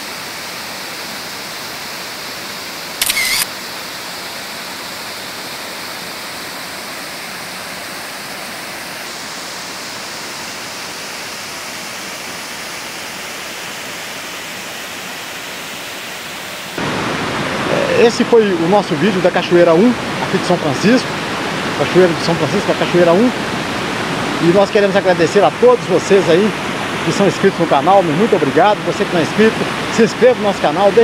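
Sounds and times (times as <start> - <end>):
waterfall rushing: 0.0 - 31.0
burst of high hiss: 3.0 - 3.5.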